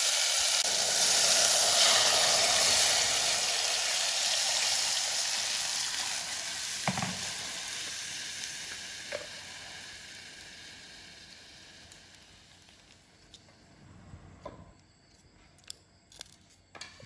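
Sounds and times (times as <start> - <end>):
water sizzling in a hot pot: 0.0 - 13.4.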